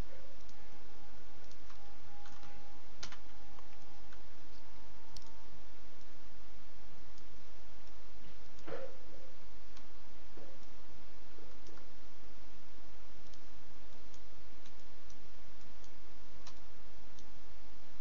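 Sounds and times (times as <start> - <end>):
steady background hiss: 0.0 - 18.0
computer mouse clicks: 9.7 - 9.9, 11.5 - 11.9, 13.2 - 17.4.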